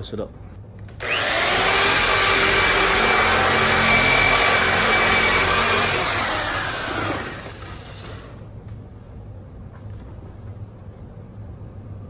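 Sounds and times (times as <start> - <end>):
electric polisher running: 1.0 - 8.3.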